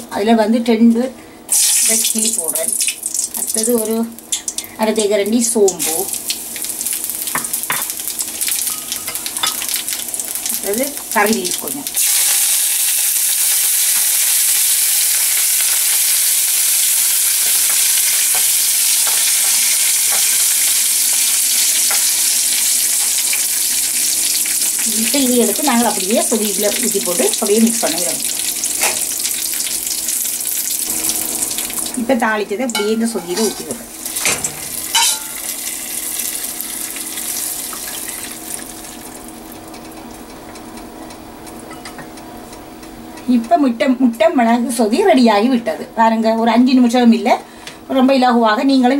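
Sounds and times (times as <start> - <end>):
oil crackling: 1.5 - 32.1
spices sizzling in hot oil: 1.5 - 43.7
metal pan clinking on pot: 8.6 - 9.7, 32.8 - 33.6, 34.2 - 35.4.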